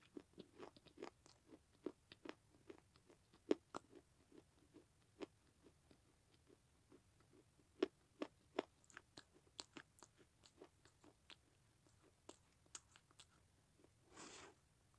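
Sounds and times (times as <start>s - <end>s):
clay being chewed crunches: 5.9s - 13.9s.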